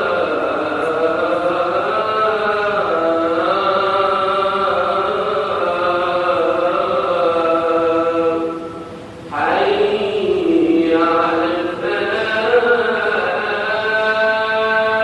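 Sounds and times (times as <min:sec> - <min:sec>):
man chanting call to prayer: 0:00.0 - 0:15.0.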